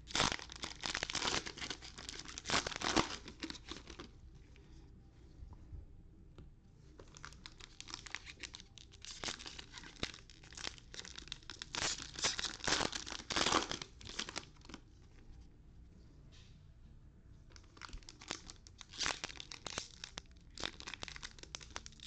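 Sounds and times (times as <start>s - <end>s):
foil wrappers crinkling and tearing: 0.0s - 4.1s, 7.1s - 14.8s, 17.6s - 22.0s.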